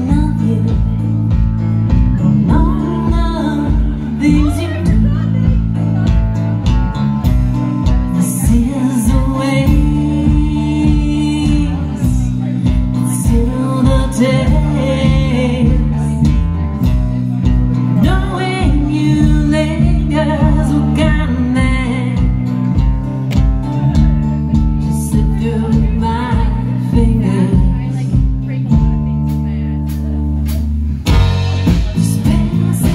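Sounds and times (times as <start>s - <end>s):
drums steady beat: 0.0s - 32.9s
electric guitars: 0.0s - 32.9s
person singing: 2.1s - 6.2s, 7.8s - 17.0s, 31.1s - 32.9s.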